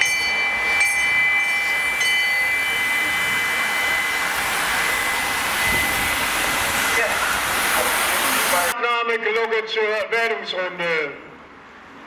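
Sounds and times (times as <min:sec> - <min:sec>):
hand bell ringing: 0:00.0 - 0:06.2.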